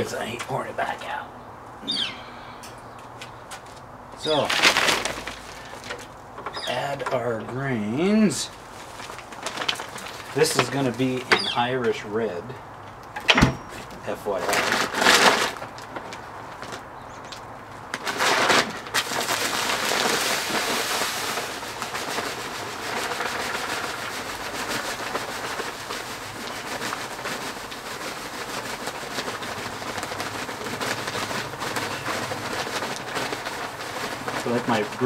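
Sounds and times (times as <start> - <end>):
grain pouring into mash tun: 18.1 - 35.0.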